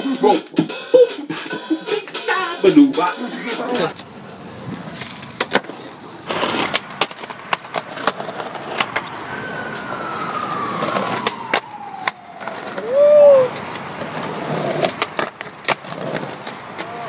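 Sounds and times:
skateboard clacking on ground: 1.9s - 17.0s
skateboard wheels rolling on asphalt: 3.9s - 17.0s.

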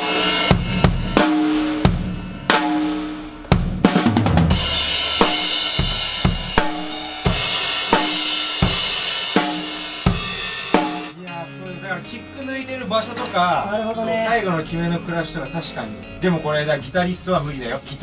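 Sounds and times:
low tom hits: 0.0s - 11.1s
acoustic drum kit playing: 0.0s - 16.4s
cymbals washing: 4.5s - 11.2s.

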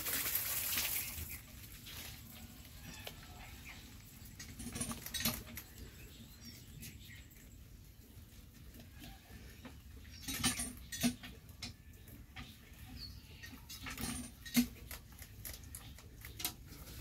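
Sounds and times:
leaves rustling: 0.0s - 3.4s
rabbits chewing greens: 0.0s - 17.0s.

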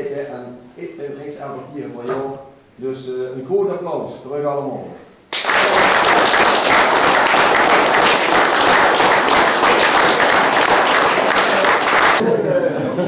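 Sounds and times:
people applauding: 5.3s - 12.2s.

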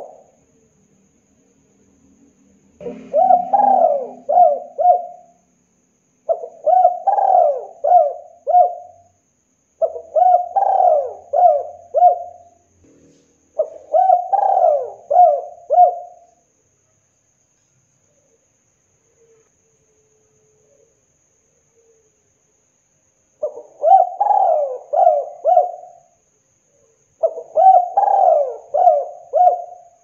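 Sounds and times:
dove cooing: 0.0s - 0.3s, 2.8s - 5.3s, 6.3s - 9.0s, 9.8s - 12.6s, 13.6s - 16.3s, 23.4s - 26.1s, 27.2s - 30.0s.

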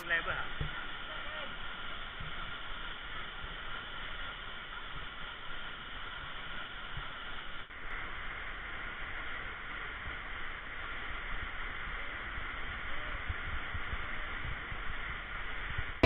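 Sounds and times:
waterfall rushing: 0.0s - 7.4s.

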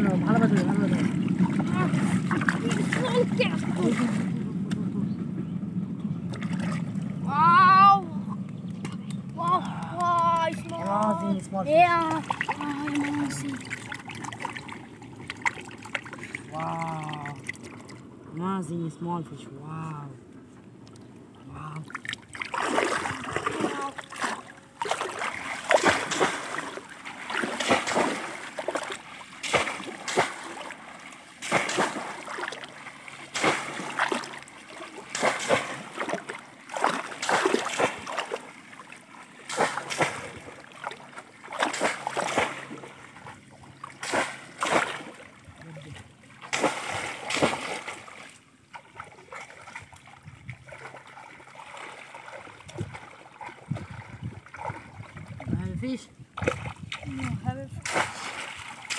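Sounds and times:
gentle slosh of water: 0.0s - 4.9s, 6.2s - 7.3s, 8.2s - 18.7s, 20.2s - 58.9s
fish traps splashing in water: 8.8s - 18.0s, 21.7s - 58.9s.

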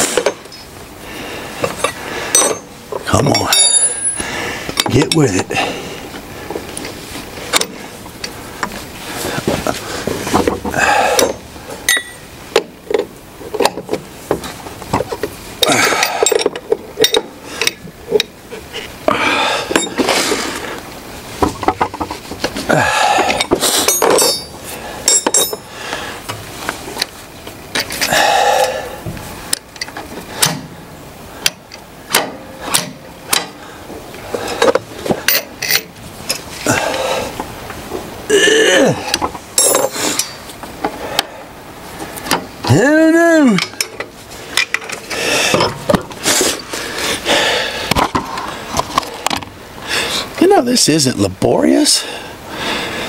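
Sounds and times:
wrenches clinking on metal fittings: 1.6s - 4.2s, 11.1s - 13.0s, 15.6s - 18.3s, 19.7s - 20.1s, 23.3s - 25.7s, 34.5s - 36.5s, 39.6s - 40.4s.

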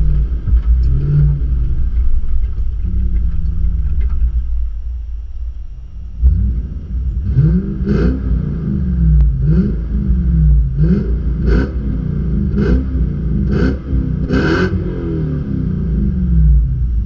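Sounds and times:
engine revving: 0.0s - 2.1s, 6.2s - 17.0s.

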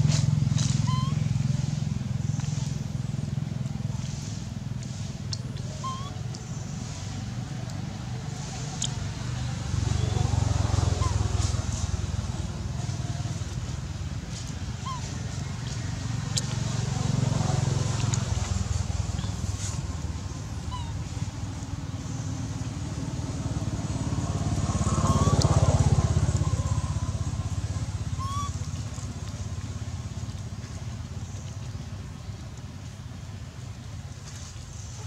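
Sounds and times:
vehicle engines droning: 0.0s - 35.0s
vehicle passing by: 0.0s - 35.0s.

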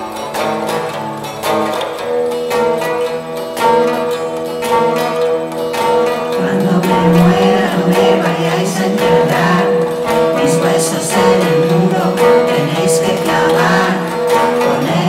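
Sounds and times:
acoustic guitar strumming: 0.0s - 15.0s
person singing: 6.3s - 15.0s.

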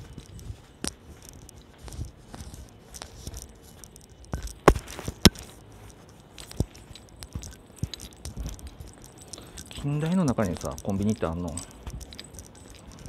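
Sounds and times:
camera handling rustling: 0.1s - 9.8s.

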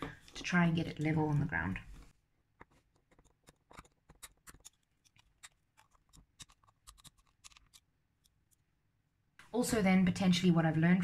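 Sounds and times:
metal tool clicking on plastic: 2.6s - 8.6s.

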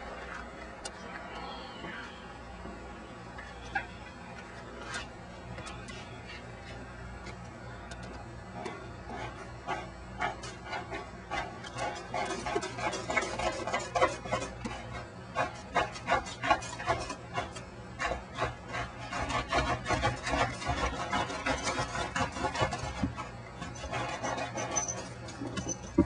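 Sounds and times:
cat scratching in plastic carrier: 9.1s - 26.0s.

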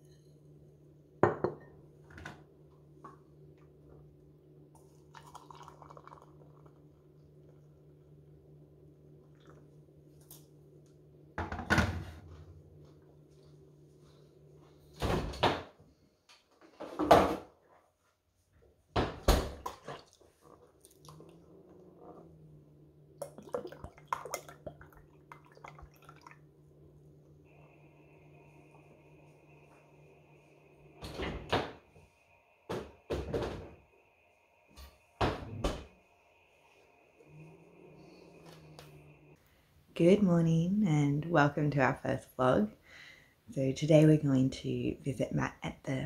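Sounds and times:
kitchen doors clunking shut: 15.0s - 15.8s, 31.0s - 31.8s, 35.2s - 35.9s.

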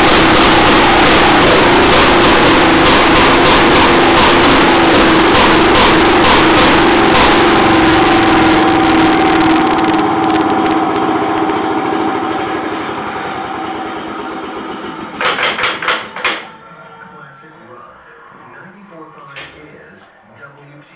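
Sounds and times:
two-stroke engine running: 0.0s - 16.6s
clatter of sharp knocks: 15.1s - 16.5s.

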